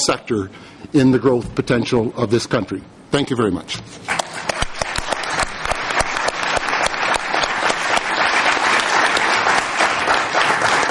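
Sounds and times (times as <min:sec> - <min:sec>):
audience applauding: 0:04.1 - 0:10.9.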